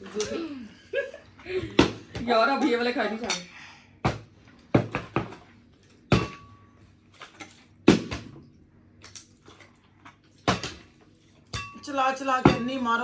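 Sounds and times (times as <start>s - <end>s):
hard objects knocking and clattering: 4.0s - 5.5s.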